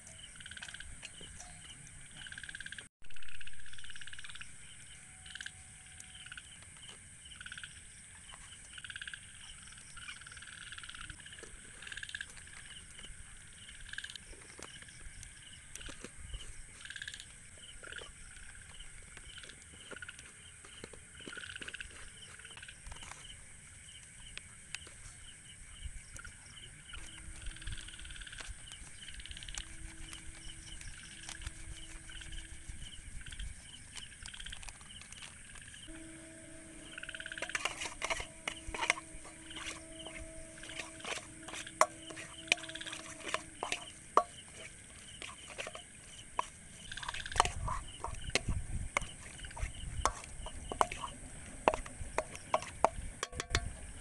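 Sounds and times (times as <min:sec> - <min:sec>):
crickets and insects chirping: 0:00.0 - 0:54.0
metal spoon scraping steel bowl: 0:27.0 - 0:33.0, 0:35.9 - 0:53.7
spoon clinking against steel: 0:51.7 - 0:53.7.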